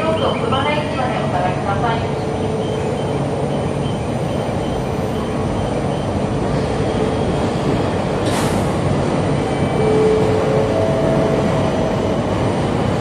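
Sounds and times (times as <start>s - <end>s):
train equipment low rumble and hum: 0.0s - 13.0s.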